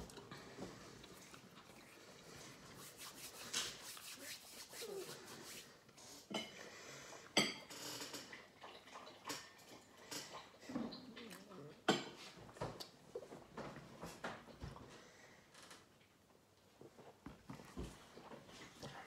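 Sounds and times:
man chewing food: 0:00.0 - 0:03.0
hands rubbing together: 0:02.6 - 0:05.8.

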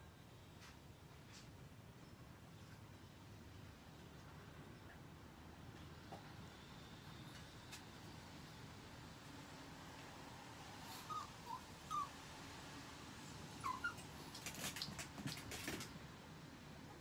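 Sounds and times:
dog whimpering: 0:10.9 - 0:12.2, 0:13.5 - 0:14.2
claws scratching and clicking: 0:13.8 - 0:16.0.

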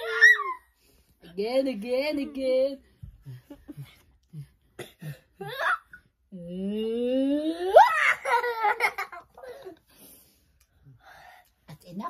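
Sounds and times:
young child giggling: 0:08.0 - 0:09.8.

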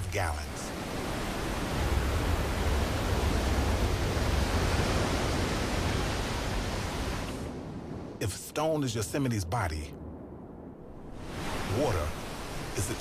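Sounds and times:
heavy rushing water: 0:00.0 - 0:08.0, 0:10.9 - 0:13.0.

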